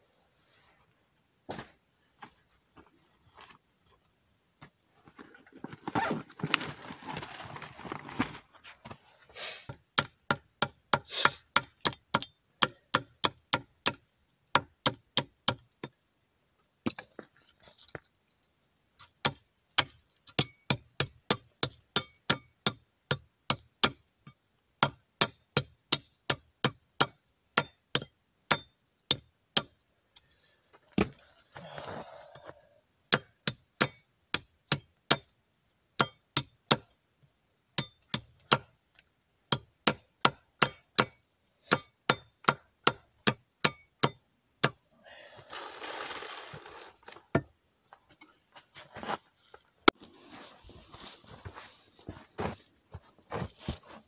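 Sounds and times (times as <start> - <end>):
soft rustle: 4.9 - 9.4, 48.4 - 54.0.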